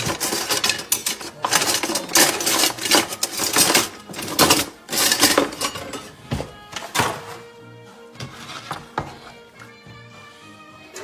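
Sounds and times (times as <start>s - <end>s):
metal utensils clattering: 0.0s - 7.5s, 8.2s - 9.2s.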